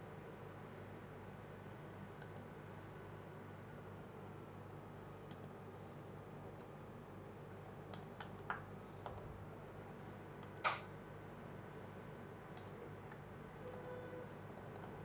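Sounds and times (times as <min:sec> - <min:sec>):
faint steady hum: 0:00.0 - 0:15.0
mouse and keyboard clicks: 0:05.3 - 0:05.6, 0:07.9 - 0:08.6, 0:10.4 - 0:10.9, 0:12.6 - 0:15.0.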